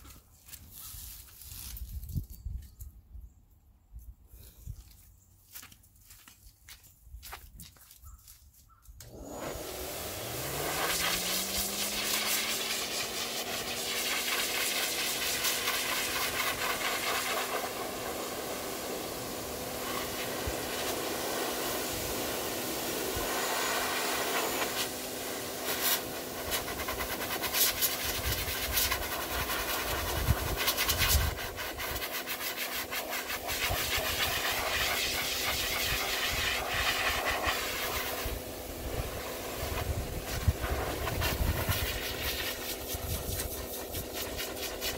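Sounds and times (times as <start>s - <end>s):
motor hum: 9.0s - 31.9s
dog dryer air rush: 9.0s - 44.9s.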